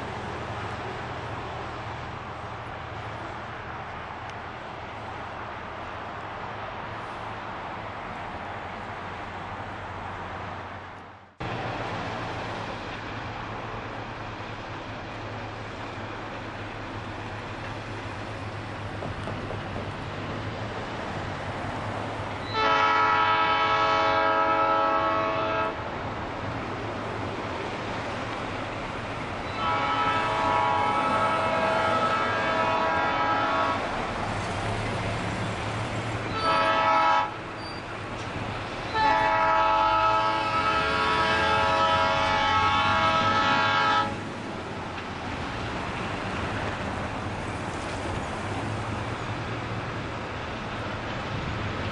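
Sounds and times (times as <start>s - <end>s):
locomotive rumble: 0.0s - 51.9s
road traffic: 0.0s - 51.9s
locomotive air horn blasts: 22.4s - 25.8s, 29.4s - 33.9s, 36.2s - 37.4s, 38.9s - 44.2s.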